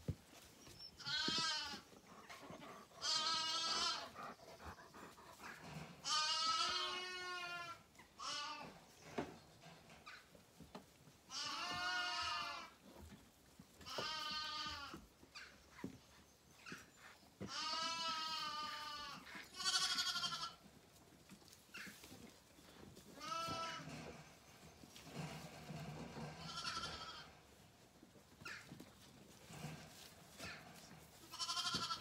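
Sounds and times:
lambs bleating: 1.0s - 1.8s, 2.9s - 4.3s, 6.0s - 8.7s, 11.3s - 12.7s, 13.9s - 15.0s, 17.4s - 20.6s, 23.2s - 23.9s, 26.3s - 27.4s, 31.3s - 32.0s.

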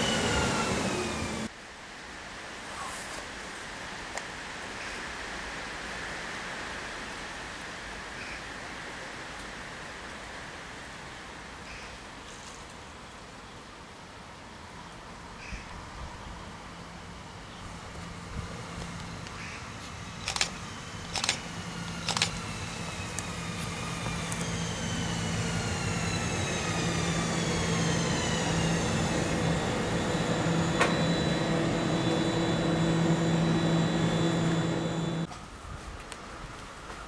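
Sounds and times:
train motor whine: 0.0s - 1.5s, 17.7s - 35.3s
train low hum: 0.0s - 1.6s, 14.5s - 35.6s
sharp clicks: 20.2s - 22.4s.

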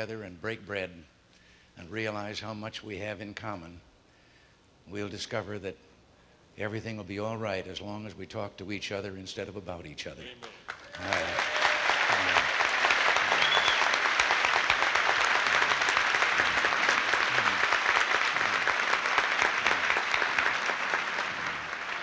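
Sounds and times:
audience applauding: 10.2s - 22.0s.

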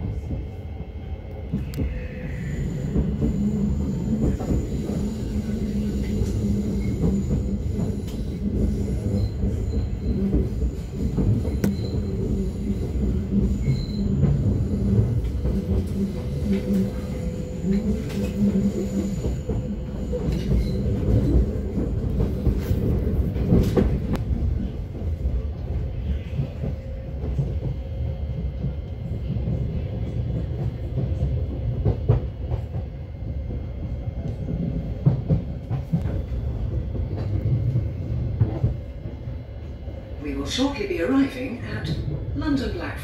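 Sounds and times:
train wheels rumbling on track: 0.0s - 43.0s.

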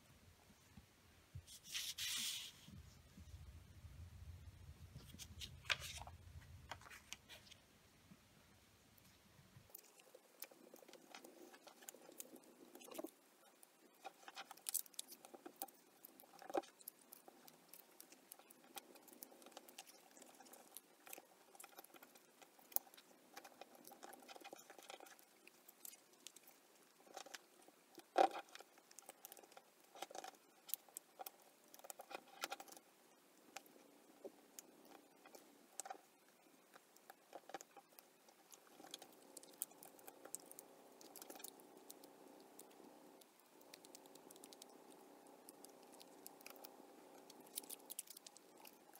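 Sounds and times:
paper money crinkling: 5.0s - 6.1s.

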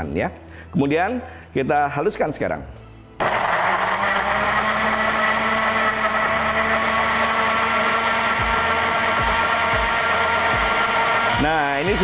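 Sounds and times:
electric blender grinding: 3.2s - 12.0s.

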